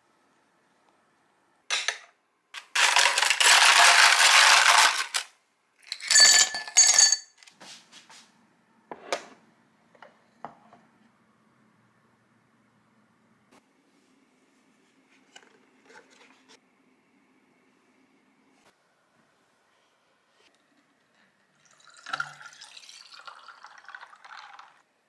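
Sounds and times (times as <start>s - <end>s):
glassy clinking: 5.9s - 7.4s
tableware rattling clatter: 5.9s - 7.4s.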